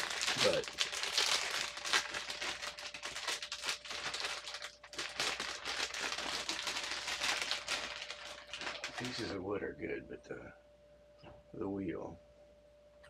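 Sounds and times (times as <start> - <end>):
packaging crinkling and rustling: 0.0 - 9.4.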